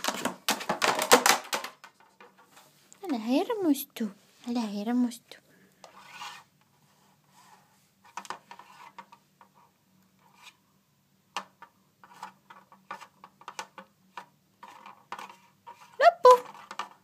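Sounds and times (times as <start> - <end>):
treat puzzle clicking and scraping: 8.0 - 10.6, 11.4 - 17.0.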